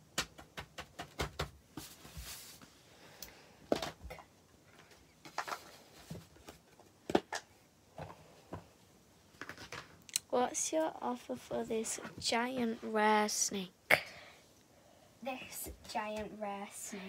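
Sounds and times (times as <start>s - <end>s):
paper rustle: 5.2s - 6.9s.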